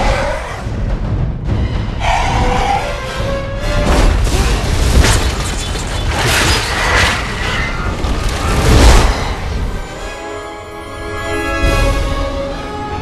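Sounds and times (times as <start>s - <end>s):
film music: 0.0s - 13.0s.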